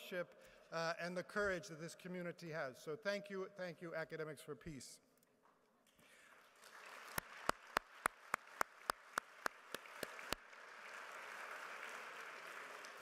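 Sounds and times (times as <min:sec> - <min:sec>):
audience applauding: 0:06.3 - 0:13.0
loud close hand claps: 0:06.5 - 0:13.0.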